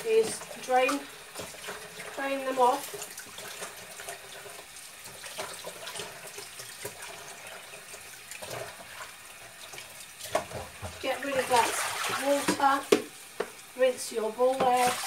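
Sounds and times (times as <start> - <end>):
water splashing: 0.0 - 13.1, 14.4 - 15.0
tap running into plastic bowl: 12.4 - 13.6.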